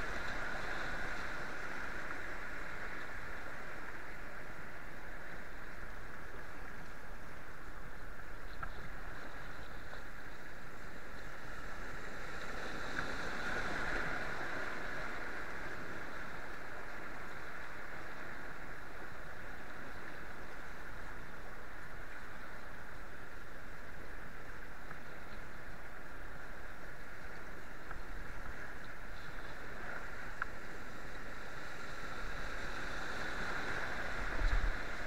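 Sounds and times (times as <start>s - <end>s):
rushing whitewater: 9.7s - 35.0s.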